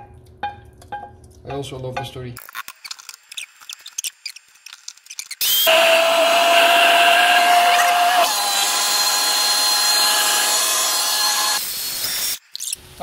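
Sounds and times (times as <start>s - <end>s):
blender motor whining: 5.4s - 12.4s.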